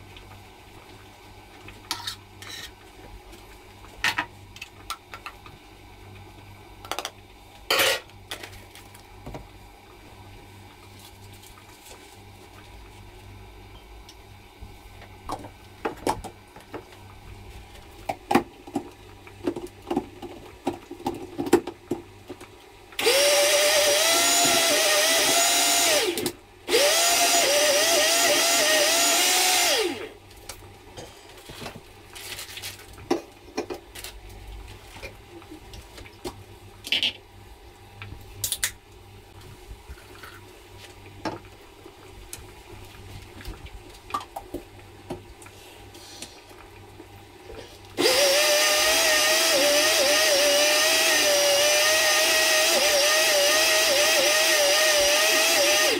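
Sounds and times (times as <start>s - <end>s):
blender motor whine: 23.0s - 30.2s, 48.0s - 55.9s.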